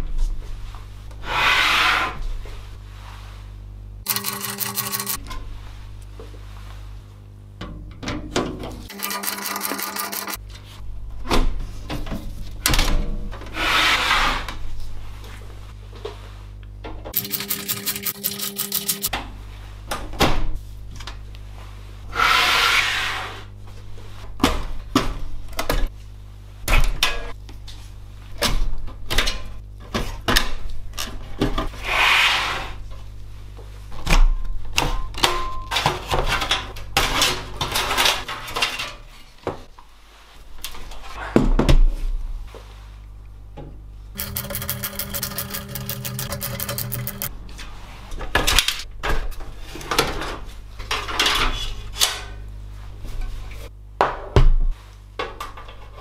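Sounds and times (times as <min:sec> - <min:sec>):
rapid even clicking: 0:44.2 - 0:47.3.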